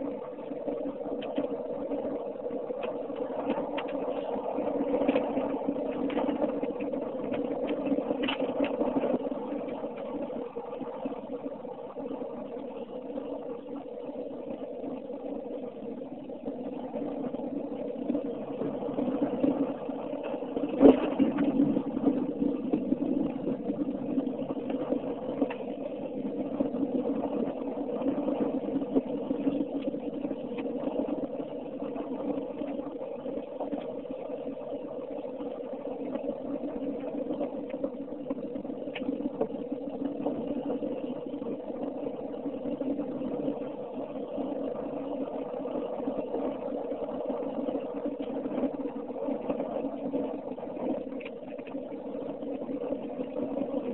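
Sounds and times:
engine and road noise hum: 47.4s - 53.9s.

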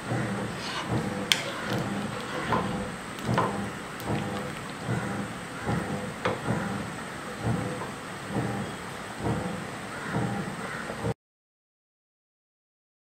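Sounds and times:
spoon stirring thick curry: 0.5s - 5.0s.

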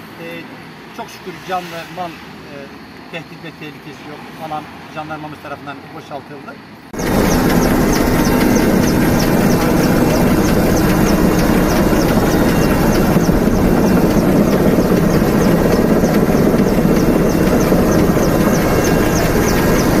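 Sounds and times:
helicopter engine and rotor: 6.9s - 20.0s
faint high ticking: 7.0s - 20.0s.

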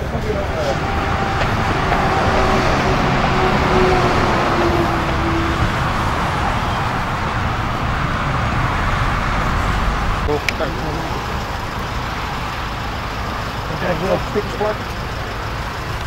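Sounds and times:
motorway traffic noise: 0.0s - 16.0s
passing vehicle engine: 0.0s - 16.0s.

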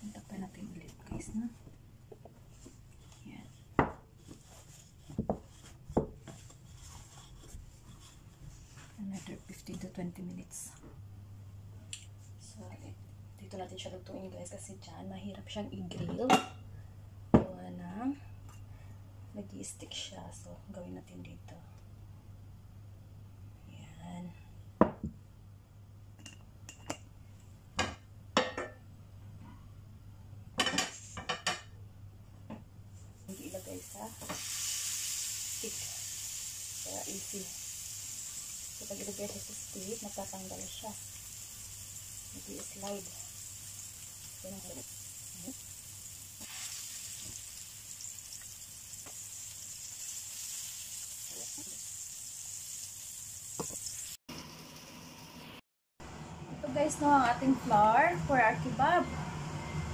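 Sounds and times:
meat sizzling in a pan: 33.3s - 54.9s.

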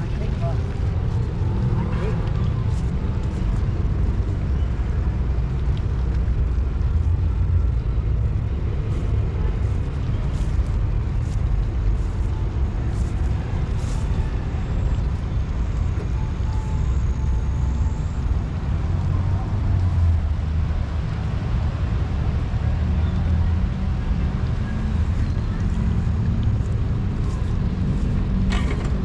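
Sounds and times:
low outdoor rumble: 0.0s - 29.0s.

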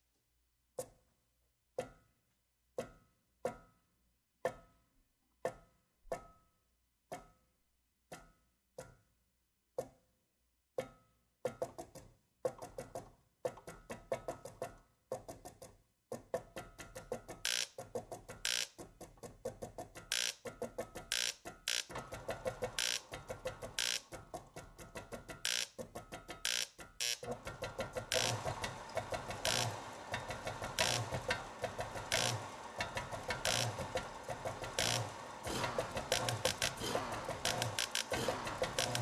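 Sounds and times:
clicking rhythm: 15.1s - 39.0s.

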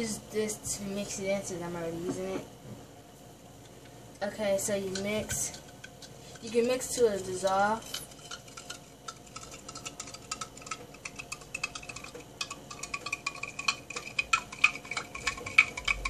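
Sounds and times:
spoon clinking and scraping a cup: 4.9s - 16.0s.

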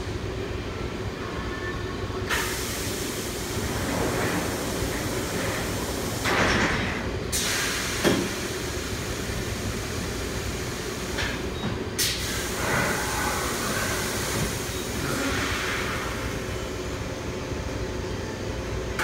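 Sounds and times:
steady machine hum: 0.0s - 19.0s
air hiss bursts: 7.3s - 10.8s, 12.0s - 16.4s.

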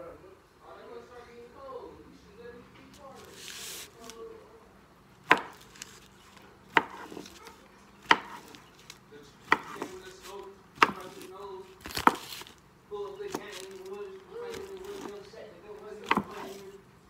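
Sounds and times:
knife chopping sausage on countertop: 5.2s - 5.9s, 6.7s - 7.4s, 8.0s - 12.5s, 16.0s - 16.7s.

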